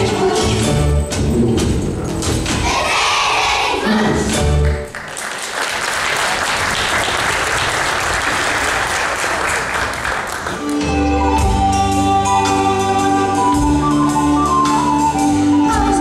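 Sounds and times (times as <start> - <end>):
audience applauding: 4.6 - 11.0
music with held tones: 10.6 - 16.0.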